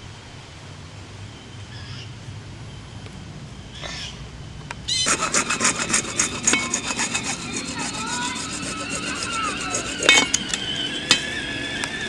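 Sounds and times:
hacksaw cutting plastic pipe: 5.0s - 12.0s.

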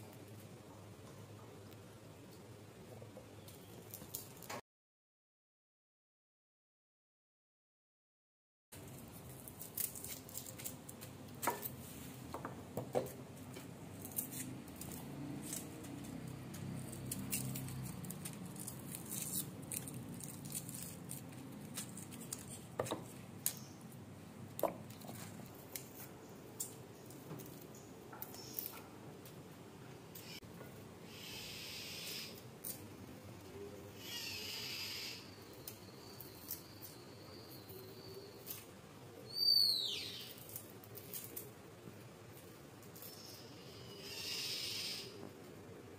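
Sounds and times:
low background noise: 0.0s - 4.6s, 8.8s - 45.9s
knife peeling onion skins: 8.8s - 28.9s, 40.2s - 43.5s.

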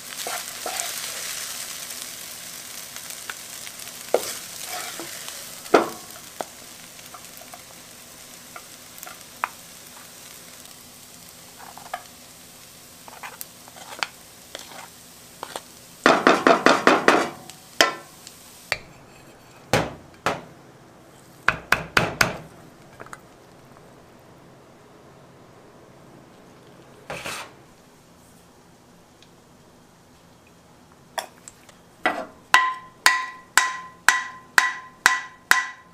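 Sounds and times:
wooden spoon scraping a wok: 0.0s - 1.7s, 3.7s - 7.7s, 11.5s - 12.1s, 13.0s - 17.5s, 18.7s - 19.7s, 27.0s - 28.5s
faint sizzle from pan: 0.0s - 35.9s.

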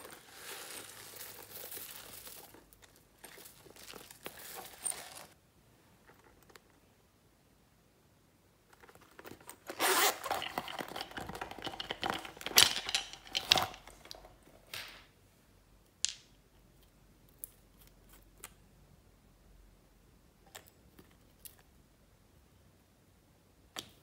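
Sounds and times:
rustling handling noise: 0.0s - 6.9s, 8.6s - 14.7s
zipper pulled open: 9.6s - 10.6s
small bottles clicking: 9.9s - 14.2s.

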